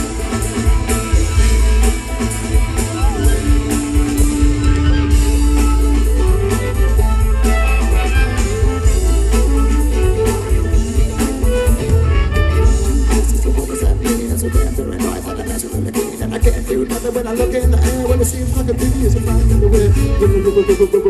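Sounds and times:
fiddle: 0:00.0 - 0:15.8
drums: 0:00.0 - 0:21.0
electric guitar: 0:00.0 - 0:21.0
upright bass: 0:00.0 - 0:21.0.

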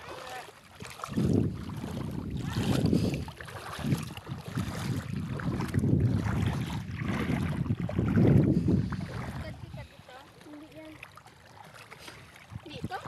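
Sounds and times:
footsteps wading through water: 0:00.0 - 0:13.0
wind buffeting microphone: 0:01.0 - 0:10.1, 0:12.4 - 0:13.0.

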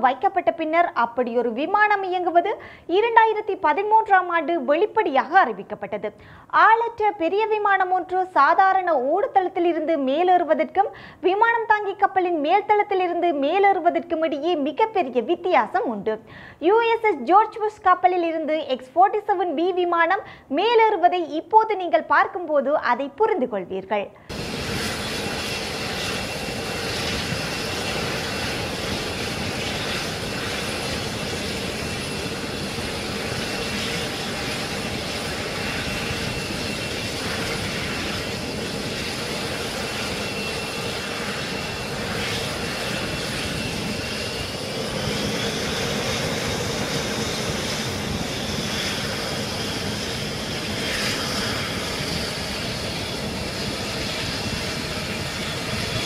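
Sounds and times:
high turbine whine: 0:24.2 - 0:56.0
jet engines rushing: 0:24.2 - 0:56.0.

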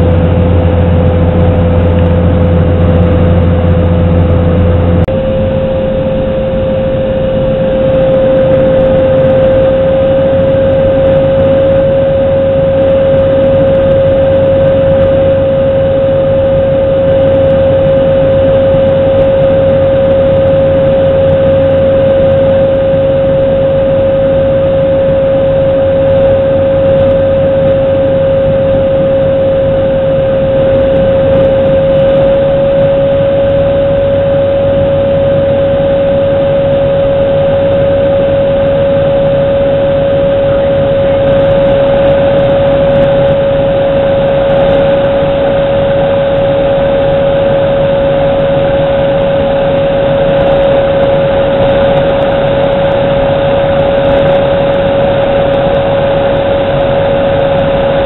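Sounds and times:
plane engine and propeller drone: 0:00.0 - 0:58.0.

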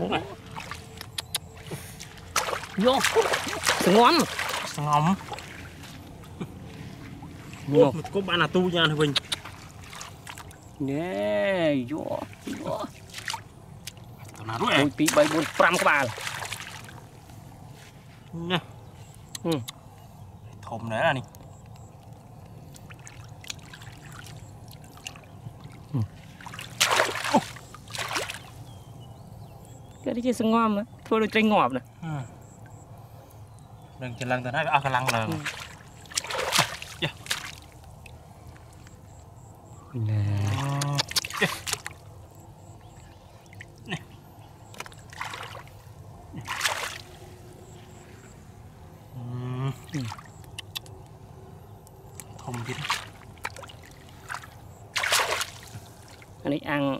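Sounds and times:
small splashes: 0:00.0 - 0:10.8, 0:12.1 - 0:17.2, 0:22.6 - 0:28.7, 0:34.8 - 0:39.0, 0:40.3 - 0:48.3, 0:49.8 - 0:51.0, 0:52.1 - 0:56.4
muddy water sloshing: 0:00.0 - 0:10.9, 0:11.8 - 0:19.3, 0:20.6 - 0:31.7, 0:32.4 - 0:49.1, 0:49.7 - 0:56.5.

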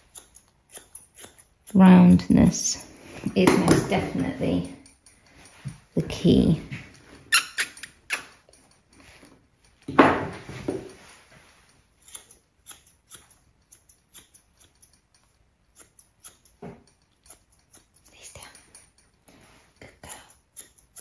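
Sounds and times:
scissors snipping dog fur: 0:00.0 - 0:09.7, 0:10.7 - 0:21.0.

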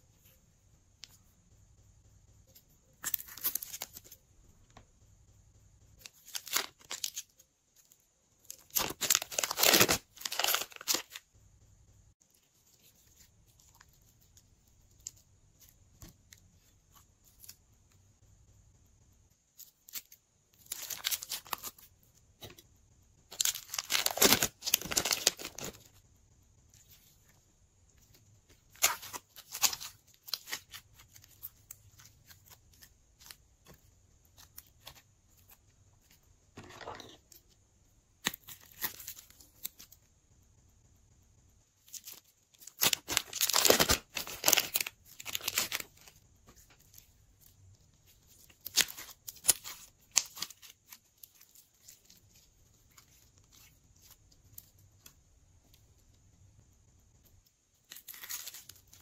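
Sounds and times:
plastic bags crinkling and rustling: 0:08.5 - 0:11.2, 0:23.3 - 0:26.0, 0:41.9 - 0:46.7.

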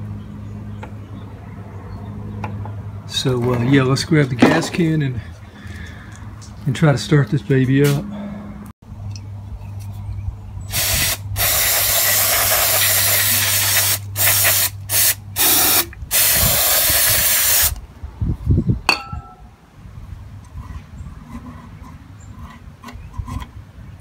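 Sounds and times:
aerosol can spraying: 0:10.7 - 0:17.8.

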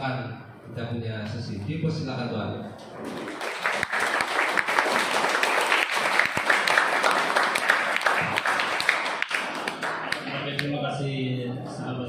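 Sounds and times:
crowd clapping: 0:02.9 - 0:10.8.

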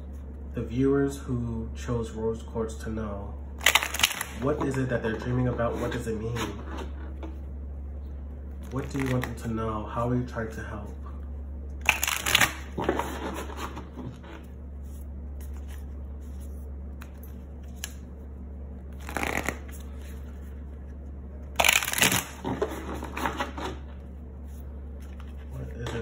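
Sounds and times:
steady low hum: 0:00.0 - 0:26.0
cards being shuffled: 0:08.6 - 0:09.4, 0:11.8 - 0:18.2, 0:18.9 - 0:23.8, 0:24.4 - 0:26.0.

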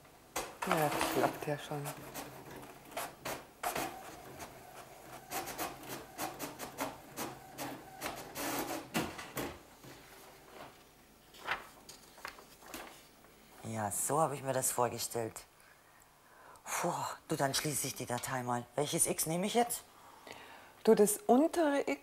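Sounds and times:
inkjet printer printing: 0:00.4 - 0:09.5.

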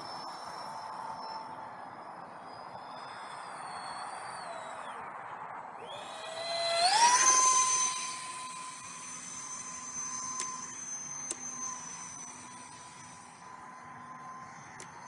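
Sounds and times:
electric ducted fan whining: 0:05.8 - 0:15.0.

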